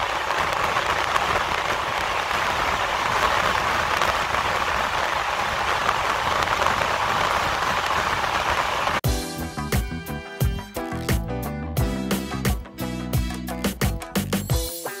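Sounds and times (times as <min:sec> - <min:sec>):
train rushing on rails: 0:00.0 - 0:09.0
music: 0:09.0 - 0:15.0.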